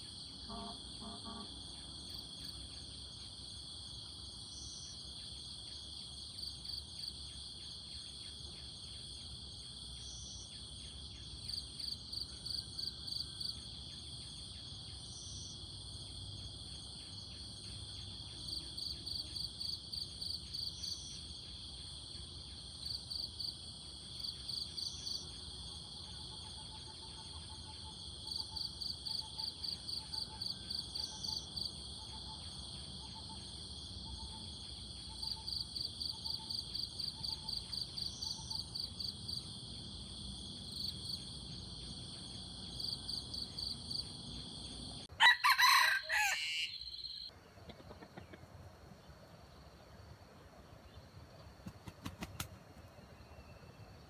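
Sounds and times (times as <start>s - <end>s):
shrill insect chorus: 0.0s - 47.3s
rooster crowing: 45.1s - 47.2s.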